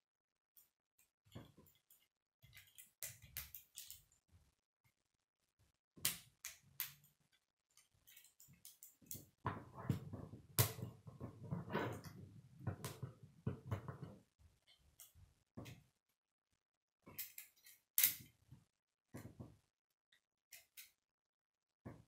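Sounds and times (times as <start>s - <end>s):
plastic pieces clicking together: 1.7s - 4.1s, 17.1s - 18.2s.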